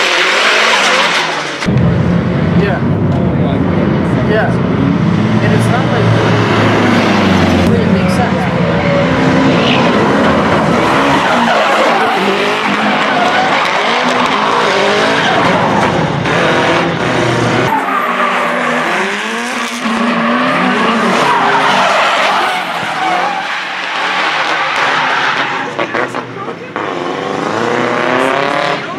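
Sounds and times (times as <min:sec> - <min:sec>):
car engine revving: 0:00.0 - 0:28.9
tyres screeching: 0:08.4 - 0:26.2.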